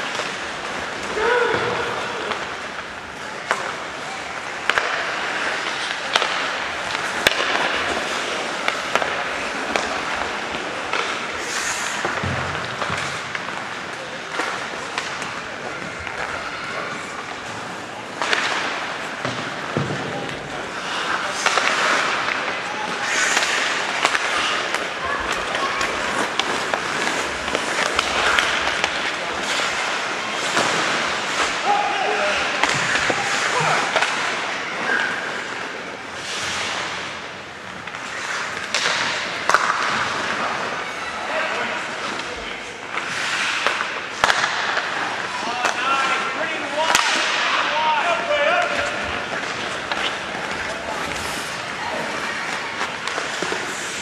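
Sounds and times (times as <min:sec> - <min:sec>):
skates scraping on ice: 0:00.0 - 0:54.0
sticks striking puck: 0:04.6 - 0:16.4, 0:17.2 - 0:37.1, 0:37.8 - 0:40.7, 0:42.9 - 0:54.0.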